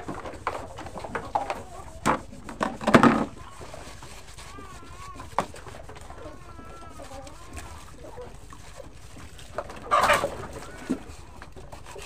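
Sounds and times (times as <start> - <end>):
chickens clucking: 0.0 - 12.0
plastic cups clinking in water: 0.0 - 12.0
chicken squawk: 9.8 - 11.0.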